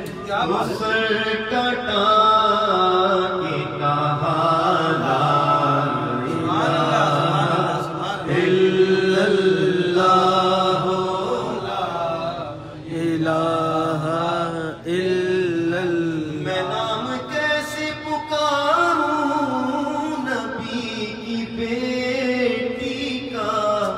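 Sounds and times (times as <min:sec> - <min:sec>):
man chanting into a microphone: 0:00.0 - 0:23.9.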